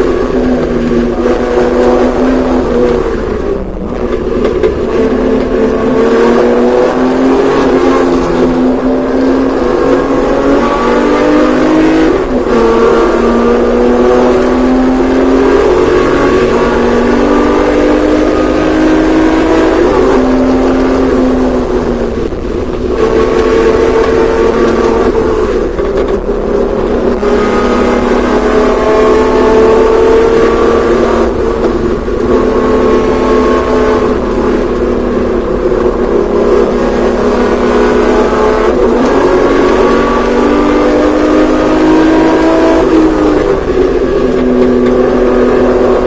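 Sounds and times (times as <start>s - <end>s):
racing car engine revving: 0.0s - 46.0s
wind and road noise: 0.0s - 46.0s.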